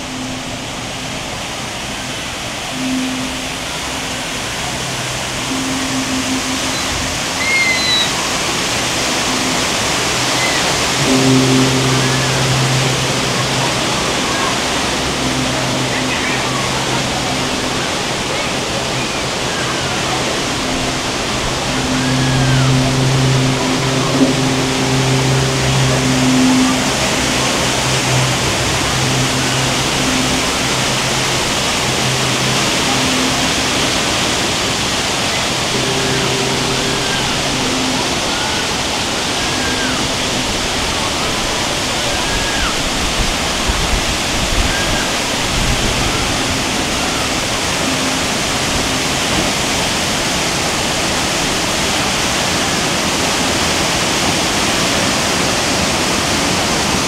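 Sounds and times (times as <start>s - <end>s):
low hum: 0.0s - 52.0s
rush of falling water: 0.0s - 57.0s.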